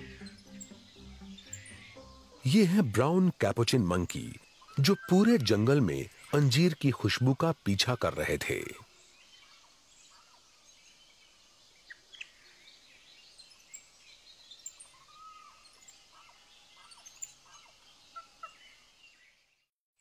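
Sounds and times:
animal chirps and calls: 0:00.0 - 0:08.8, 0:14.6 - 0:18.8
steady high hiss: 0:00.0 - 0:14.8.

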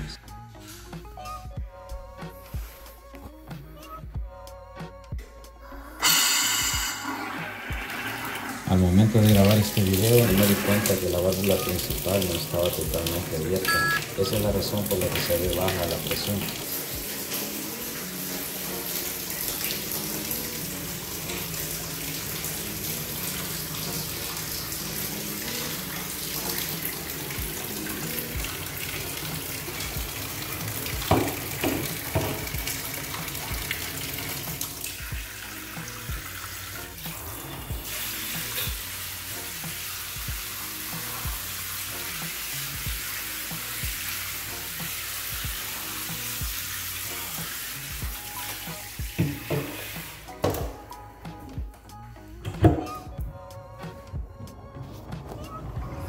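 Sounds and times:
background music with steady beat: 0:00.0 - 0:56.0
water spraying into tub: 0:06.0 - 0:50.9.

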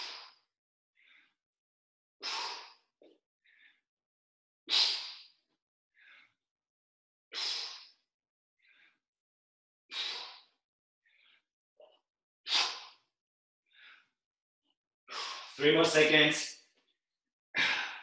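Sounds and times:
soft in-breaths: 0:00.0 - 0:01.4, 0:02.2 - 0:03.9, 0:06.0 - 0:06.4, 0:08.6 - 0:09.0, 0:10.0 - 0:11.5, 0:13.7 - 0:14.2
man exhaling forcefully: 0:09.9 - 0:10.4.

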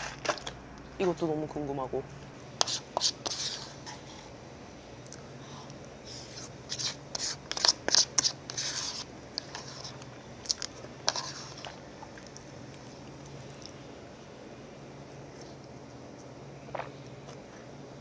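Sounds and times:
spoon scraping a bowl: 0:02.6 - 0:04.3, 0:06.1 - 0:10.1, 0:10.7 - 0:11.8.

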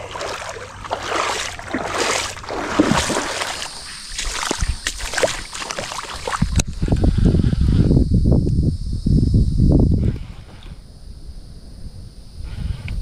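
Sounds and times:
river water splashing: 0:00.0 - 0:06.6.

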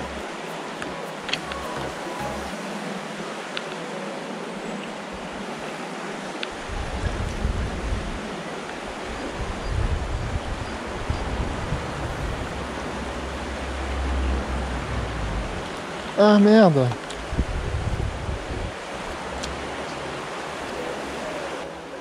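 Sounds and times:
river flowing: 0:00.0 - 0:22.0
wind rumble on microphone: 0:06.5 - 0:16.2, 0:16.9 - 0:21.6.

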